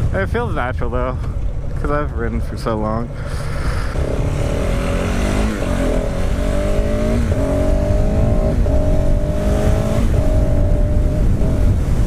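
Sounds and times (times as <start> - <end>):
wind rumble on microphone: 0.0 - 12.0
motorcycle engine accelerating: 3.0 - 12.0.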